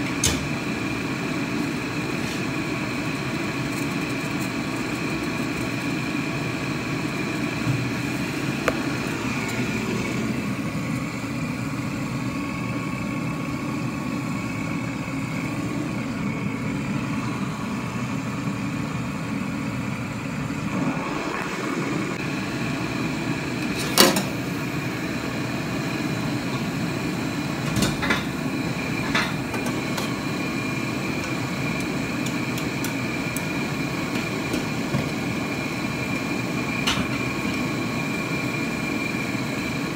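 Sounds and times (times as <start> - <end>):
gas burners humming: 0.0 - 39.9
faint whine: 15.3 - 23.6.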